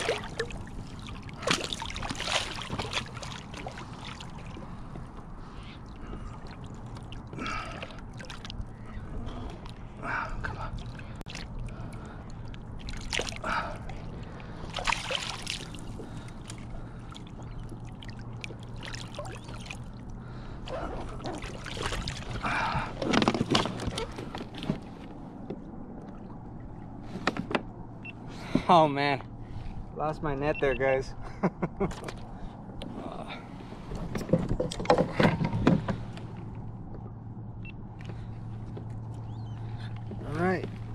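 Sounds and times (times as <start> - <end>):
fish splashing at water surface: 14.7 - 16.2.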